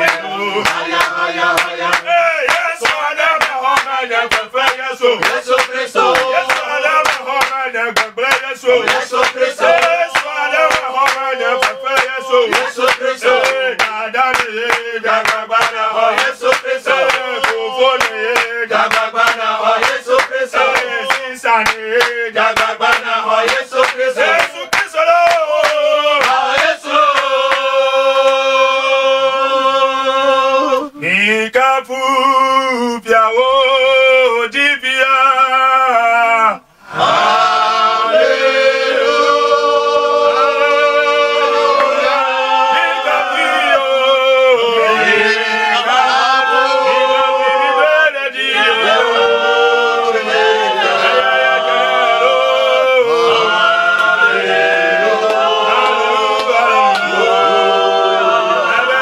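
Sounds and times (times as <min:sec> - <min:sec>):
hand clapping: 0:00.0 - 0:28.5, 0:54.0 - 0:54.2, 0:55.2 - 0:57.1
men singing together: 0:00.0 - 0:59.0.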